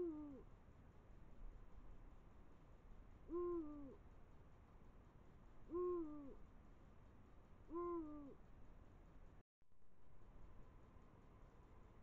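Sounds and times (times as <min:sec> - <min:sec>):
owl hooting: 0:00.0 - 0:00.4, 0:03.3 - 0:04.0, 0:05.7 - 0:06.4, 0:07.7 - 0:08.4.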